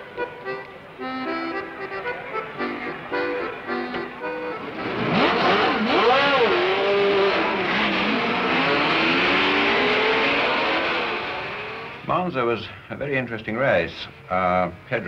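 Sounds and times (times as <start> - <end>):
racing cars passing at full speed: 4.2 - 12.1.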